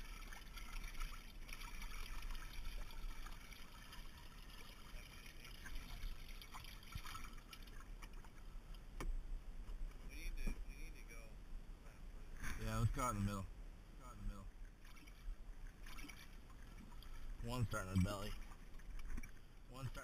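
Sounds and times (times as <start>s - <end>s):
water splashing and trickling: 0.0s - 8.9s, 14.0s - 20.0s.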